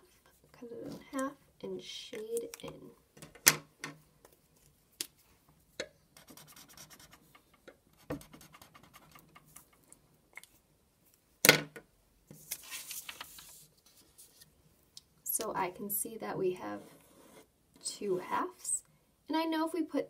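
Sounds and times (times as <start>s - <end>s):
highlighter scratching on paper: 6.2s - 7.3s, 16.6s - 17.5s.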